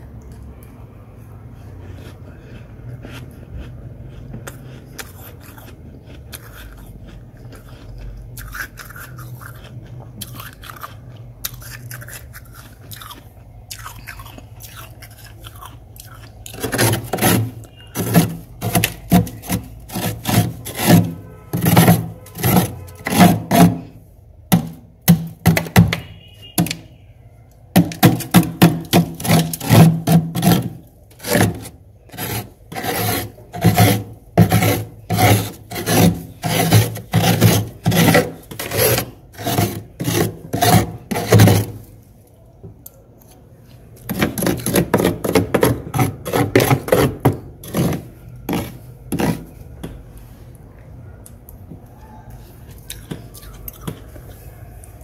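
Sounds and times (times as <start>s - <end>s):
frost being scraped: 16.5s - 26.8s, 27.8s - 41.9s, 44.1s - 49.7s.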